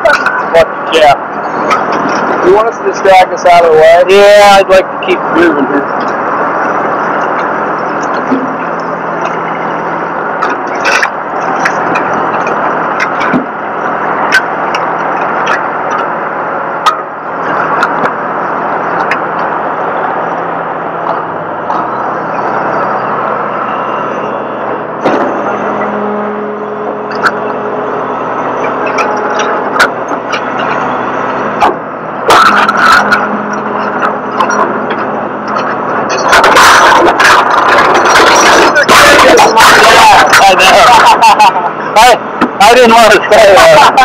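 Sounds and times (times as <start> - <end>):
vehicle engine running: 0.0 - 44.0
sharp clanks and knocks: 6.0 - 9.7, 10.4 - 13.6, 25.0 - 25.9, 28.6 - 39.0.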